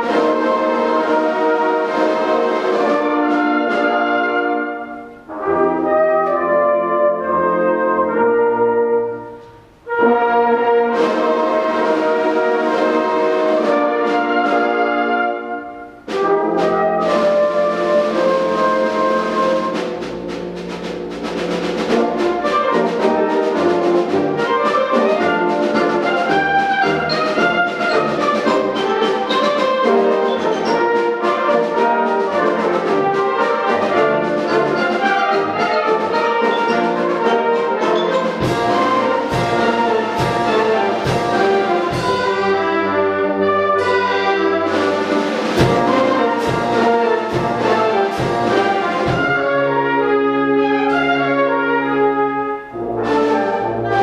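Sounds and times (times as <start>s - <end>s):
wind band playing: 0.0s - 54.0s
heavy accented beats: 18.0s - 43.1s.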